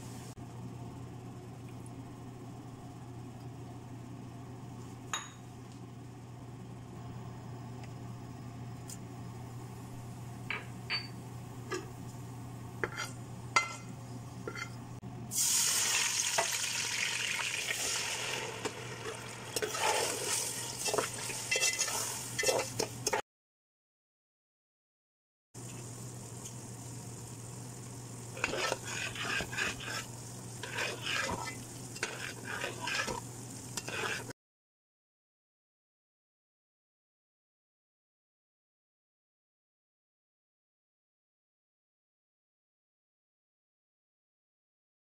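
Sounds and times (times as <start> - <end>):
low steady hum: 0.0 - 15.5
liquid sizzling in a pot: 15.3 - 23.2, 25.6 - 34.3
metal skimmer scraping pot: 19.0 - 23.2, 28.4 - 33.2, 33.8 - 34.3.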